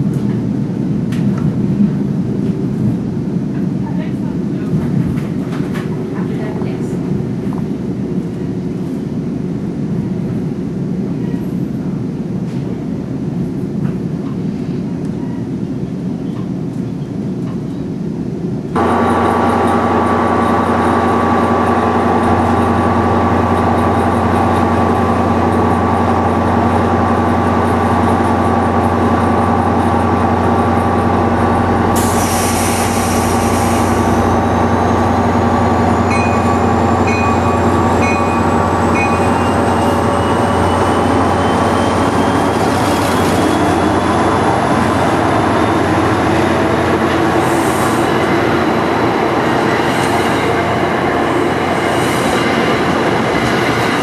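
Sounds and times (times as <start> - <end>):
idling diesel locomotive drone: 0.0 - 54.0
moving train rumble: 0.0 - 54.0
hiss: 32.0 - 34.2.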